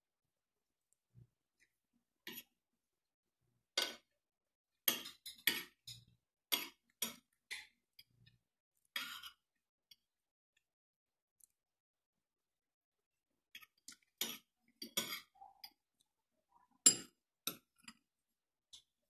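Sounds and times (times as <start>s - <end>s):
cutlery scraping a plate: 2.2s - 2.5s, 4.8s - 7.8s, 9.0s - 9.4s, 13.6s - 15.8s.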